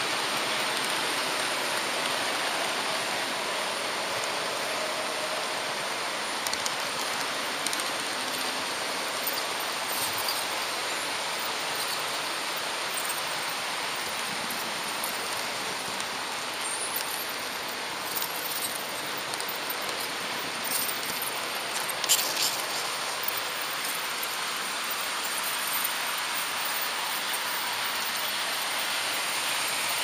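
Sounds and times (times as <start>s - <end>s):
model train rolling hiss: 0.0s - 30.0s
small clicks: 6.4s - 8.4s.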